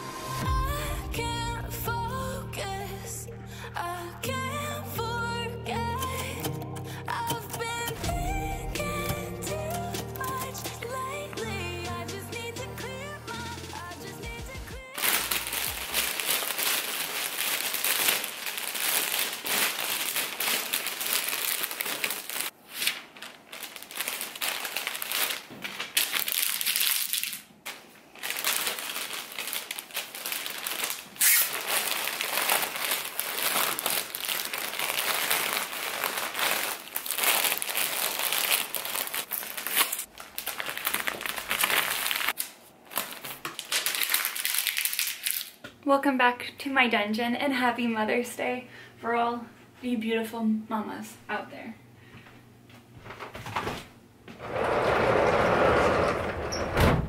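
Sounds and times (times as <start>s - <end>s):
plastic bag crinkling: 14.9s - 45.6s.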